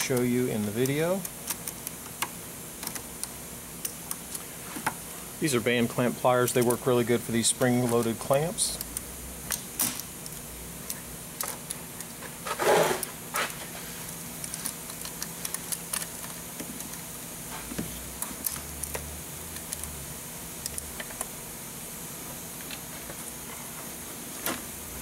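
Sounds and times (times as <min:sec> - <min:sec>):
rubber hose scraping: 0:12.4 - 0:13.9.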